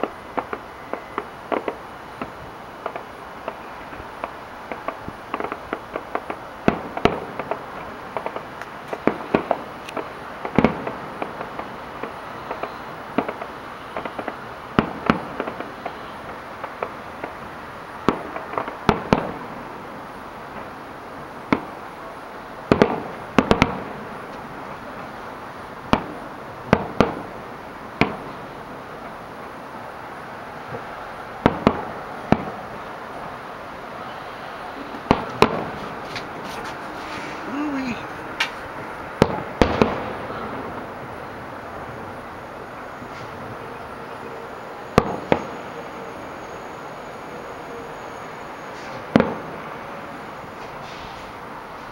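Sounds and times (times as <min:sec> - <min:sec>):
firework shells bursting: 0:00.0 - 0:19.6, 0:22.7 - 0:25.2, 0:30.8 - 0:32.8, 0:34.8 - 0:42.0, 0:45.0 - 0:46.1.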